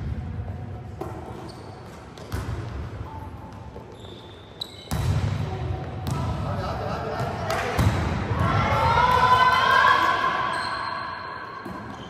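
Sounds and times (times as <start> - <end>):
volleyball smacks with echo: 4.9 - 6.4, 7.2 - 9.2.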